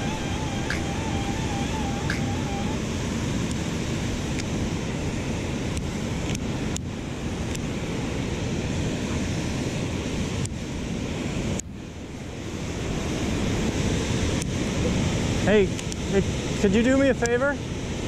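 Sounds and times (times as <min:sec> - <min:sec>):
wind rumbling on microphone: 0:00.0 - 0:18.0.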